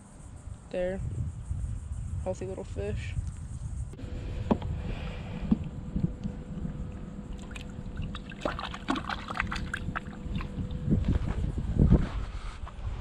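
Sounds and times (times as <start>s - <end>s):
wind rumble on microphone: 0.0s - 13.0s
small water splashes: 7.3s - 10.8s.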